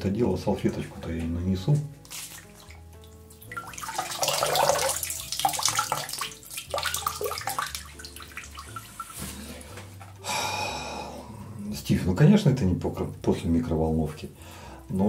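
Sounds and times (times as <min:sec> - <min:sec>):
water splashing in a sink: 0:01.7 - 0:09.4
towel being wrung out: 0:02.0 - 0:09.8.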